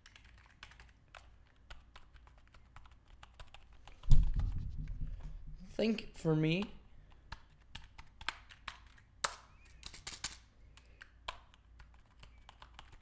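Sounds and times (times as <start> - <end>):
keyboard keys clicking: 0.0 - 4.5, 7.1 - 9.0, 9.6 - 13.0.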